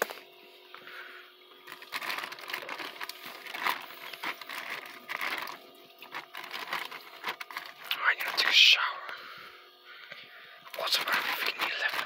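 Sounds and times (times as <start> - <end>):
wet plastic bag crinkling: 1.6 - 8.4, 10.7 - 12.0.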